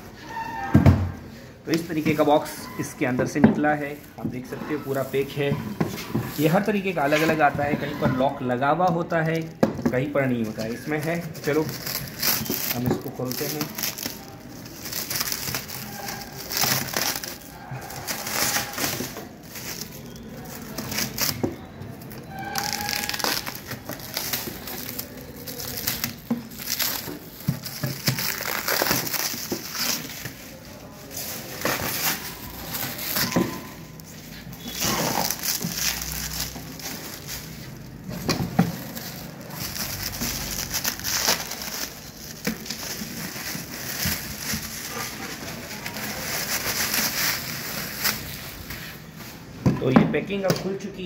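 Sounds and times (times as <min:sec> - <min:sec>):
stretch wrap tearing and rustling: 0:10.2 - 0:21.4, 0:22.2 - 0:49.1.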